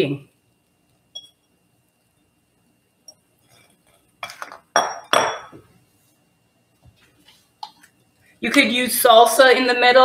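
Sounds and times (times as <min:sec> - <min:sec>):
glass bowl clinking on counter: 0:01.1 - 0:01.5, 0:03.1 - 0:05.6
kitchenware tapping on counter: 0:04.2 - 0:05.7.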